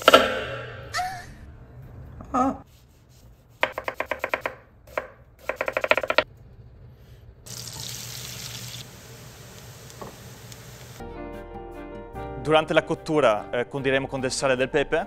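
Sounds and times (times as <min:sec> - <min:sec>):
knife chopping on cutting board: 0:03.6 - 0:06.2
food sizzling in pan: 0:07.5 - 0:11.0.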